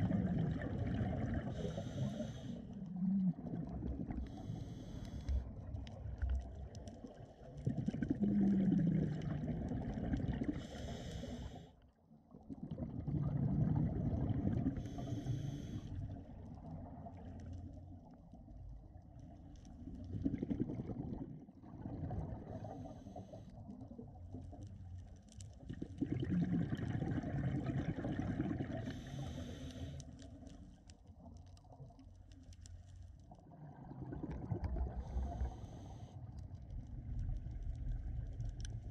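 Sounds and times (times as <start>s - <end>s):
gurgling exhaled bubbles: 0.0s - 10.9s, 12.3s - 15.2s, 19.7s - 23.2s, 25.6s - 29.6s, 33.3s - 38.9s.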